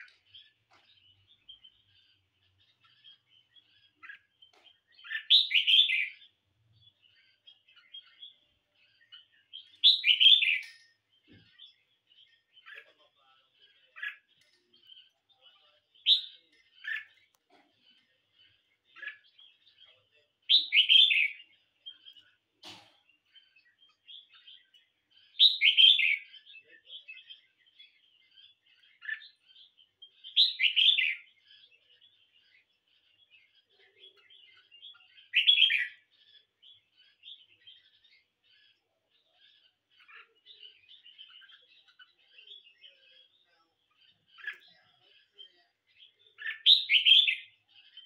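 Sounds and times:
soft bird twittering: 0.0s - 48.0s.

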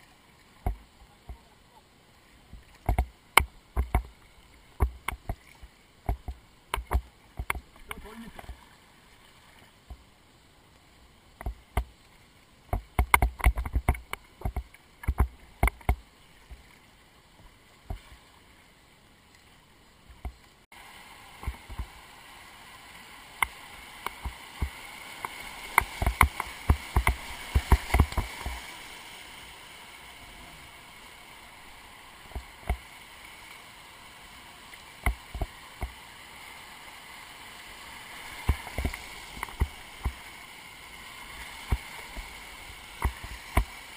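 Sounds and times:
river water rushing: 0.0s - 20.2s, 20.8s - 43.9s
paddle splashes and knocks: 24.0s - 28.6s, 38.4s - 40.2s.

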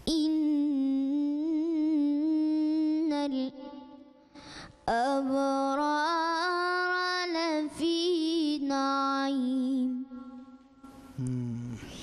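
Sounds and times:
breath: 4.3s - 4.8s.

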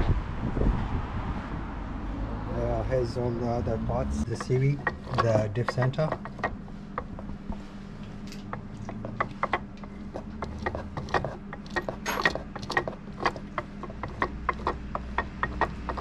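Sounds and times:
steady low hum: 0.2s - 16.0s
metallic gear clicks and clunks: 4.2s - 7.2s, 8.3s - 16.0s.

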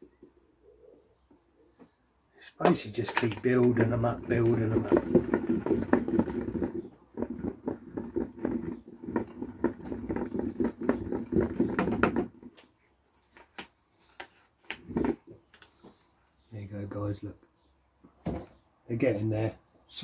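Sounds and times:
baits rattling in plastic tub: 2.9s - 12.6s.

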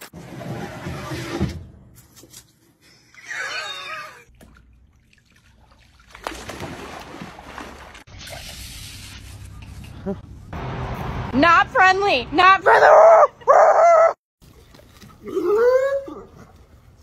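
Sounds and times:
water splashing and sloshing: 4.2s - 9.6s, 14.4s - 15.6s.

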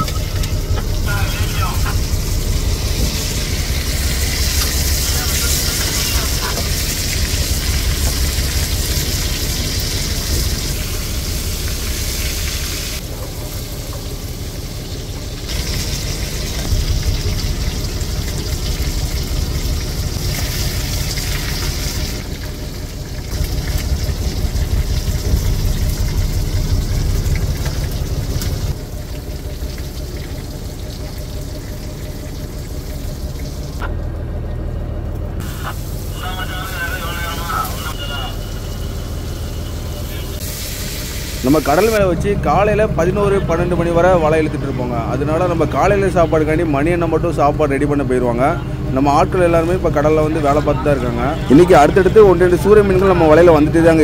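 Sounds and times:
low rumble: 0.0s - 54.0s
fish deep-frying in hot oil: 2.1s - 33.8s, 38.3s - 42.0s.

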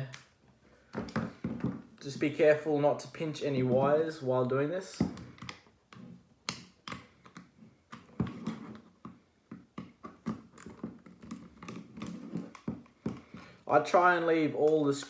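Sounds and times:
screwdriver clicking and tapping: 5.0s - 8.2s.

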